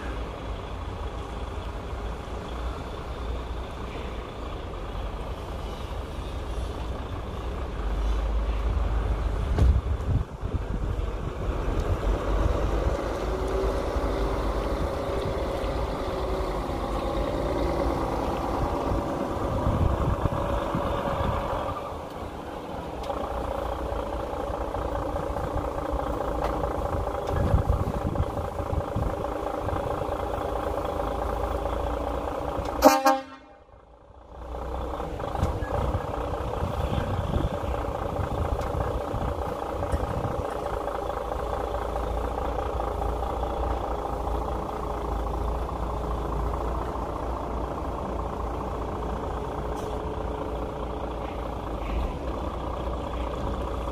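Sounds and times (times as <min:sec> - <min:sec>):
truck diesel engine at low revs: 0:00.0 - 0:53.9
short horn toot: 0:32.8 - 0:33.7.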